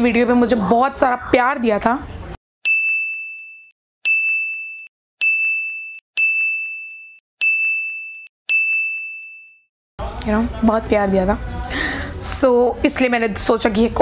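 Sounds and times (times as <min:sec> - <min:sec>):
bell-like ding: 0:02.6 - 0:09.7.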